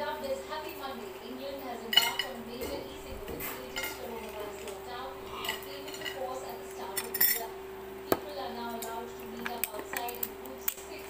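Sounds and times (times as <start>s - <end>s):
steady hum: 0.0s - 11.0s
crab shell cracking: 9.4s - 10.9s.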